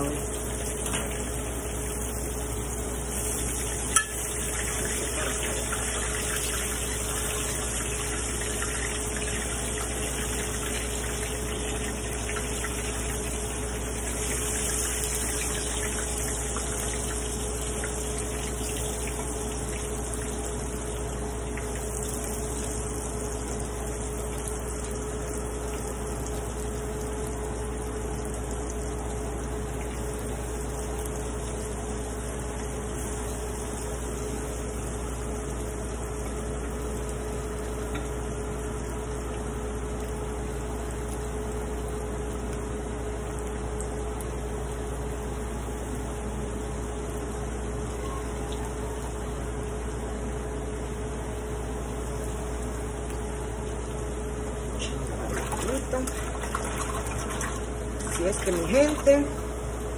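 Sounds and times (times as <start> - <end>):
shrimp sizzling in hot oil: 0.0 - 26.0, 30.3 - 37.0
steady hum: 0.0 - 59.9.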